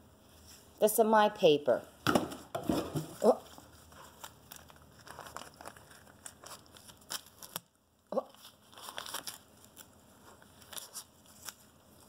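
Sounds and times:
dog tearing paper: 0:08.4 - 0:11.7.

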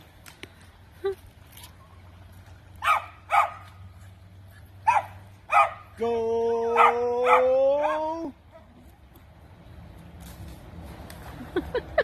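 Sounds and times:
dog barking: 0:02.8 - 0:03.7, 0:04.8 - 0:05.9, 0:06.8 - 0:08.7.

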